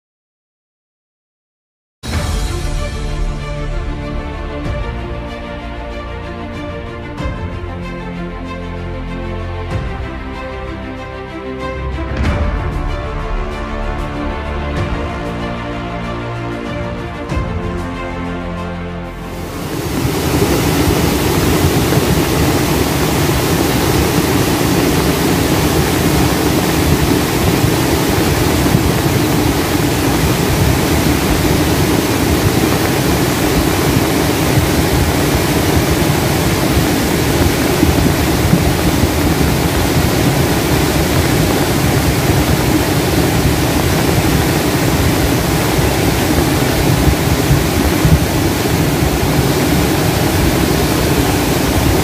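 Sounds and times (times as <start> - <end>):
river rushing: 19.2 - 52.0.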